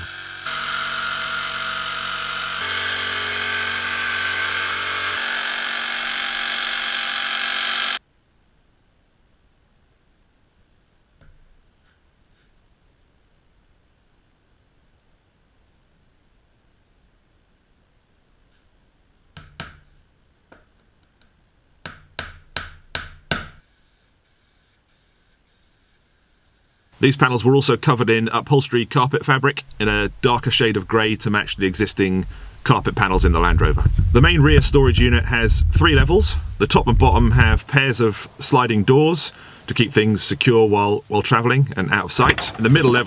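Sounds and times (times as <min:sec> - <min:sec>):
jigsaw cutting plywood: 0:00.0 - 0:08.0.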